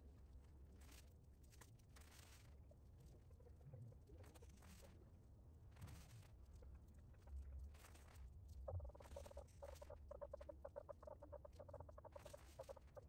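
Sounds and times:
faint bird clucks: 8.8s - 13.0s.

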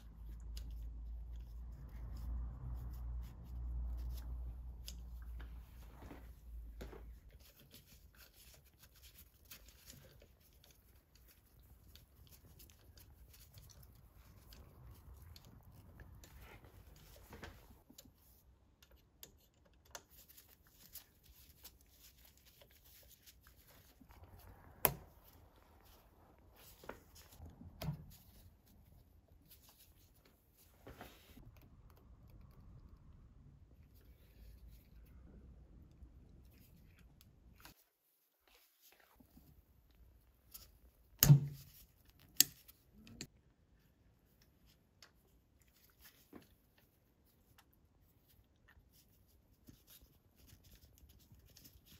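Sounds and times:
small clicks and taps of hand work: 40.5s - 43.3s.

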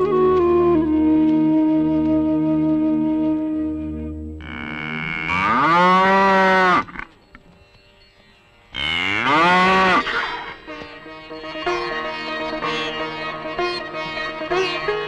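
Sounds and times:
background music with held notes: 0.0s - 15.0s
bull bellowing: 4.4s - 7.0s.

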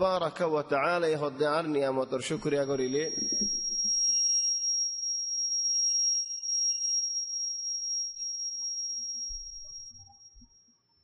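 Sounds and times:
high-pitched microphone feedback whine: 2.1s - 11.0s
fainter electronic tones: 2.3s - 11.0s.

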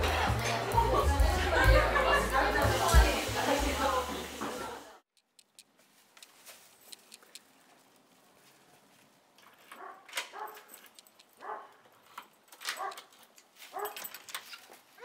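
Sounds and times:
key clicking in door lock: 10.1s - 11.4s.

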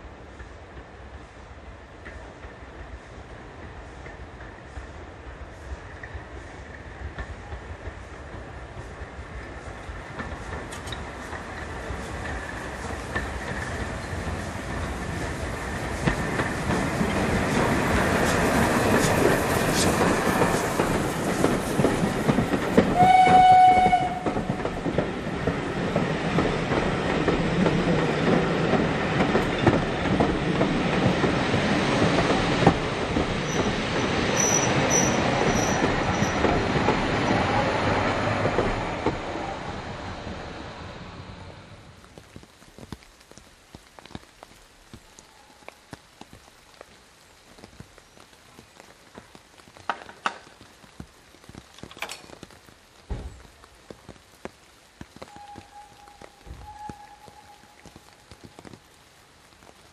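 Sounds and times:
train coaches rumbling and clattering: 0.0s - 42.4s
short train whistle: 22.9s - 24.4s, 55.3s - 57.9s.

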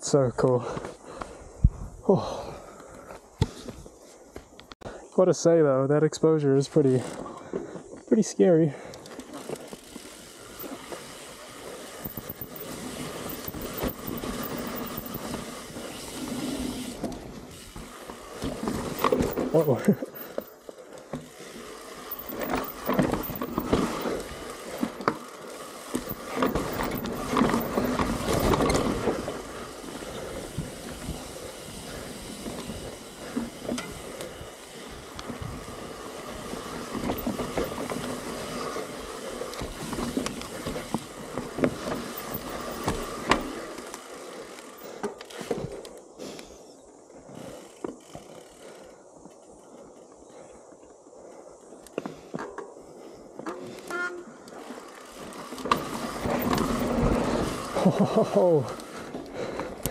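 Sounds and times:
bike tyres on dirt: 0.0s - 59.9s
bike rattling over bumps: 8.7s - 45.8s, 52.1s - 59.9s.

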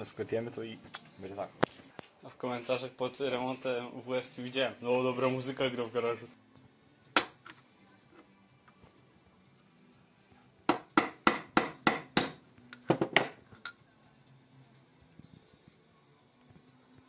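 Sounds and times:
hammer striking steel punch: 10.7s - 13.4s.

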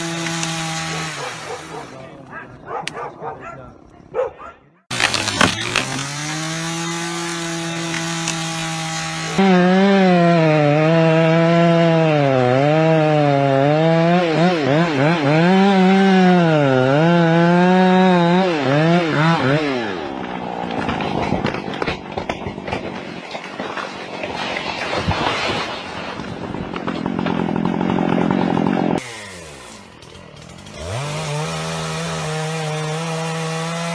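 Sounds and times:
chainsaw cutting into tree trunk: 0.0s - 2.0s, 4.9s - 33.9s
tree trunk cracking: 4.9s - 9.4s, 17.1s - 29.0s.

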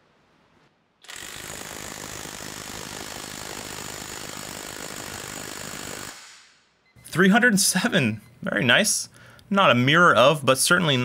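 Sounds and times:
impact wrench hammering: 1.0s - 6.5s.

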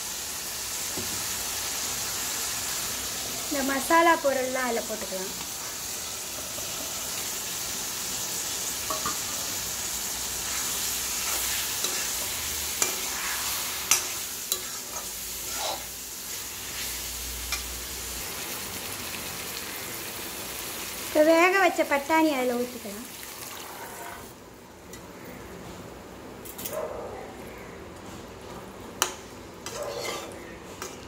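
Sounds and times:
vegetables sizzling in oil: 0.0s - 24.8s
metal spatula scraping pan: 10.4s - 15.9s, 29.6s - 31.0s.

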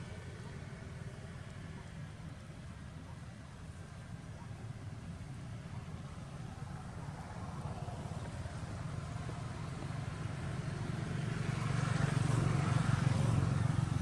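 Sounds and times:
vehicle passing: 5.0s - 14.0s.

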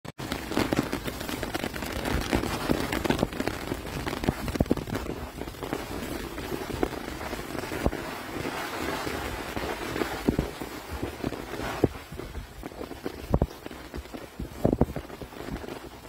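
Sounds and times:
rustling dry leaves: 0.2s - 16.0s.

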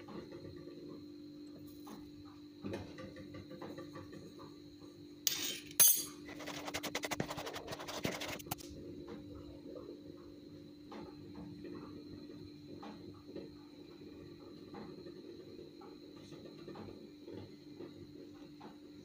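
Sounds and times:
kitchen utensils clinking: 5.3s - 6.3s.

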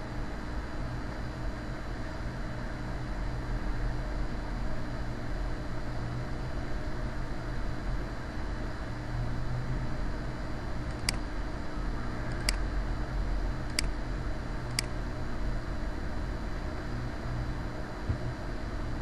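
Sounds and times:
low hum and hiss: 0.0s - 19.0s.

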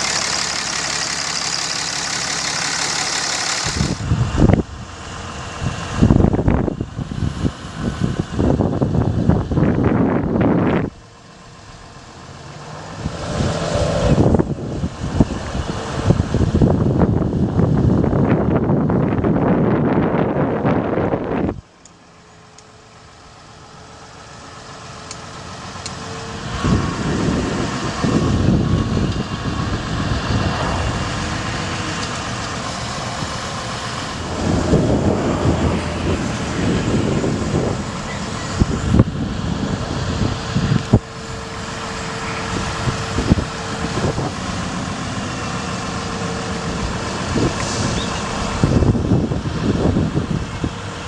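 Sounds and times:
thin steady whine: 0.0s - 7.1s
truck engine and hydraulics: 0.0s - 51.0s.

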